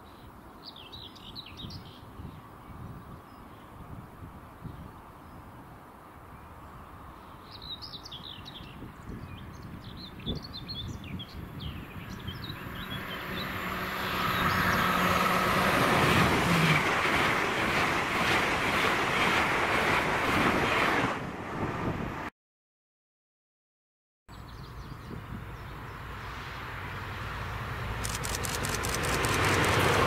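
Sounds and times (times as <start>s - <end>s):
train passing: 12.1s - 22.3s, 25.8s - 30.0s.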